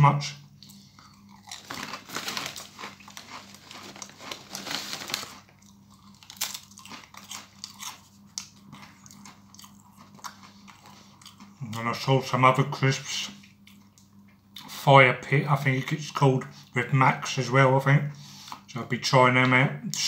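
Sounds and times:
chewing: 0.6 - 11.8, 13.4 - 14.7
potato crisp crunching: 0.6 - 12.4.

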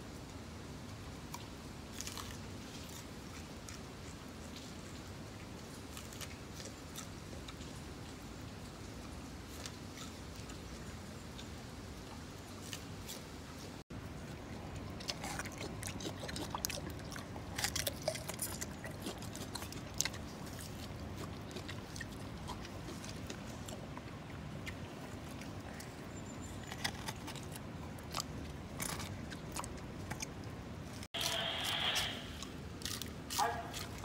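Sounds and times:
low background noise: 0.0 - 34.0
chimpanzee crunchy bites: 1.3 - 8.2, 9.4 - 34.0
wet mouth sounds: 31.1 - 34.0.

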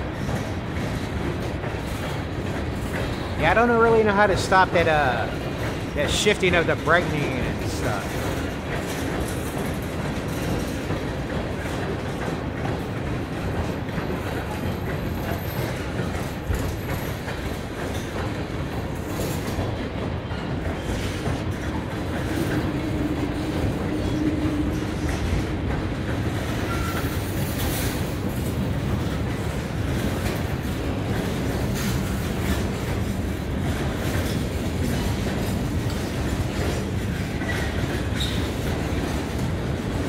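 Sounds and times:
train wheels rumbling on rail: 0.0 - 40.0
wheels clicking over rail joints: 8.0 - 40.0.

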